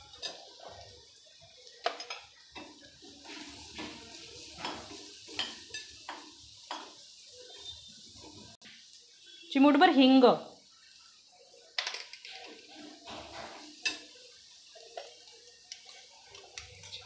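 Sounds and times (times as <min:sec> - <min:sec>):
metal spoon clinking on pan: 0:00.1 - 0:00.5, 0:01.8 - 0:02.8, 0:04.6 - 0:07.0, 0:13.7 - 0:14.2.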